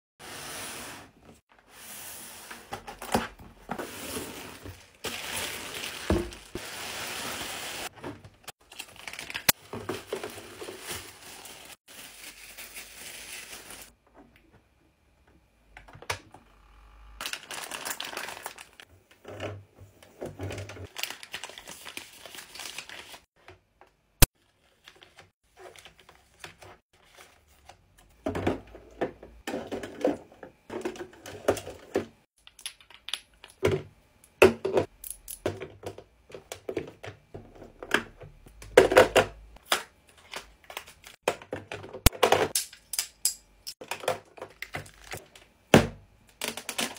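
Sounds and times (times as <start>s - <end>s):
plastic packaging crinkling: 4.8s - 7.9s, 8.6s - 13.9s, 17.2s - 18.8s, 20.9s - 23.3s.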